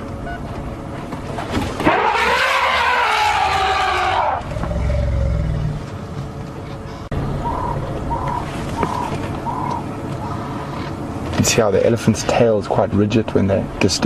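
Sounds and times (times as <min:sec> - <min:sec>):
elephant trumpeting: 0:01.8 - 0:05.7.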